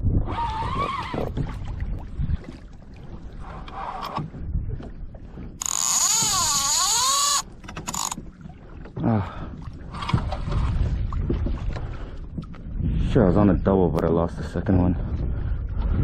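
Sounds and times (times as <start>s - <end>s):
fishing reel drag buzzing: 5.6s - 8.2s.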